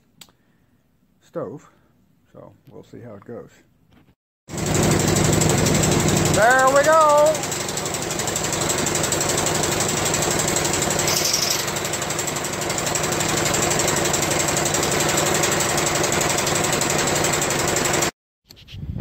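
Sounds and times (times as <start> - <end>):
small engine running at full throttle: 4.5 - 18.2.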